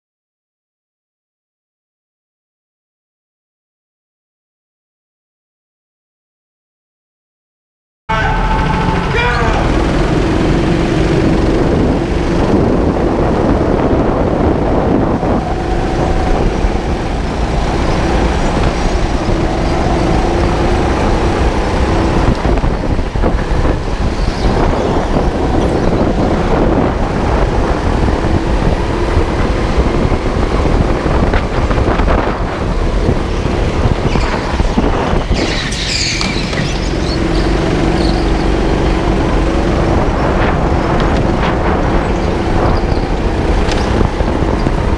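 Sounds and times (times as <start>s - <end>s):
high-pitched burst: 8.1s - 11.1s
chassis rumble and rattle: 8.1s - 44.9s
go-kart motor running: 8.3s - 44.9s.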